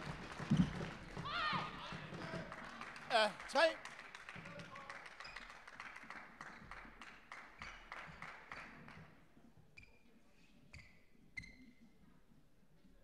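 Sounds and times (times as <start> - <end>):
shoes squeaking on court floor: 0.5 - 0.9, 9.8 - 12.0.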